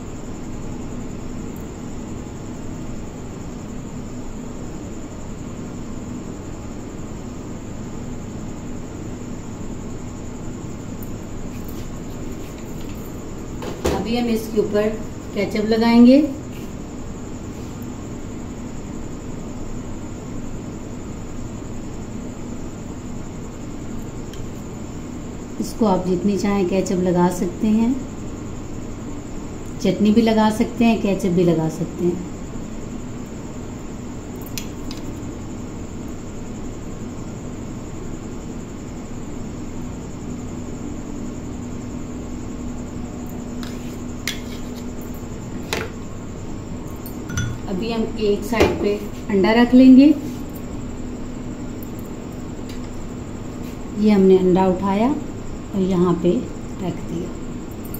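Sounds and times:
faint low hum: 0:00.0 - 0:57.9
table knife clicking and clinking: 0:47.3 - 0:47.6.

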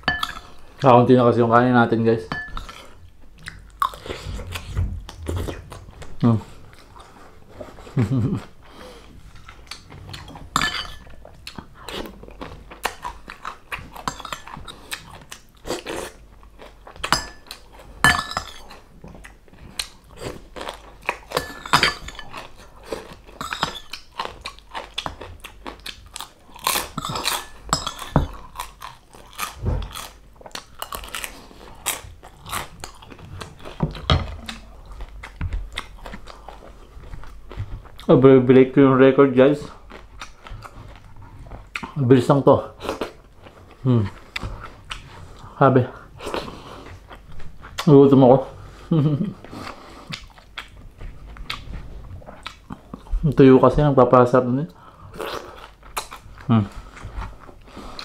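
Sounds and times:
chewing crispy fried food: 0:11.2 - 0:18.0, 0:18.6 - 0:21.5, 0:22.2 - 0:38.2, 0:39.4 - 0:53.4, 0:54.7 - 0:58.0.

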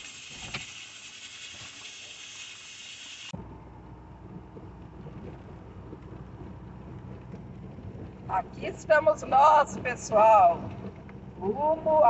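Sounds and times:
vehicle cabin rumble on road: 0:03.3 - 0:12.0.

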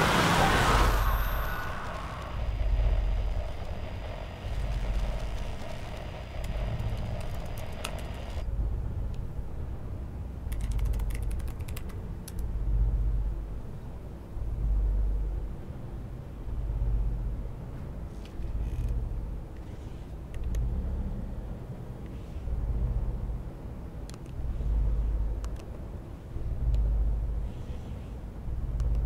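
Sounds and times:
low rumbling drone: 0:00.0 - 0:10.2
computer keyboard clicks: 0:05.2 - 0:08.4, 0:10.5 - 0:12.5.

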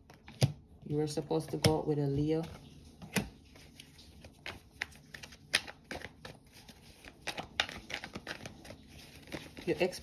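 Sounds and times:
cards being shuffled: 0:02.4 - 0:10.0.

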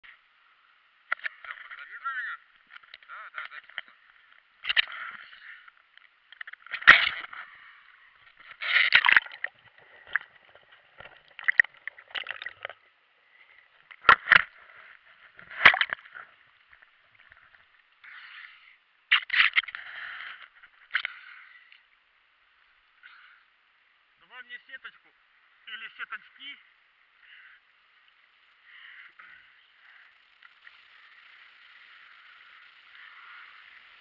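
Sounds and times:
water sloshing and gurgling: 0:08.2 - 0:17.9
water splashes: 0:08.4 - 0:13.0.

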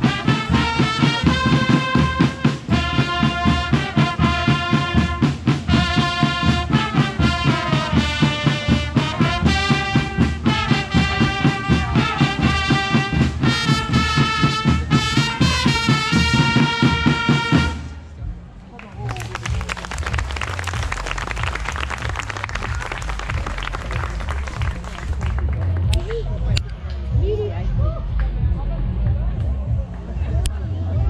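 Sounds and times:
brass band horn notes: 0:00.0 - 0:18.1
quick drum beat: 0:19.1 - 0:26.2.

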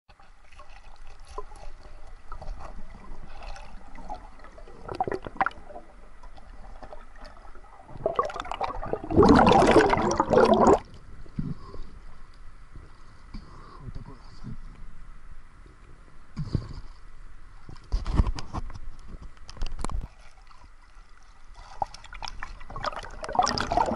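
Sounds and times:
rush of water and bubbles: 0:00.1 - 0:11.6, 0:19.7 - 0:23.9
underwater gurgling and bubbling: 0:02.5 - 0:11.7, 0:22.2 - 0:23.9
small crackles and knocks: 0:17.6 - 0:22.7.

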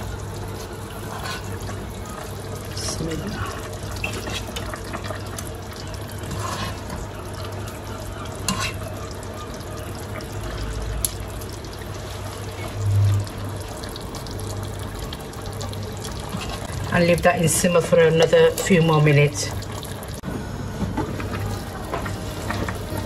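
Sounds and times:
curry simmering and bubbling: 0:00.0 - 0:23.0.

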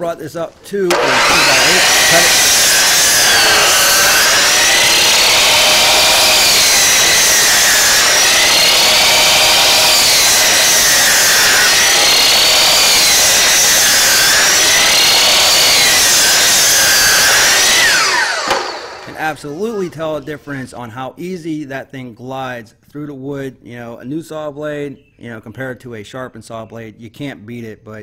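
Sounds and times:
miter saw cutting wood: 0:00.0 - 0:20.6.

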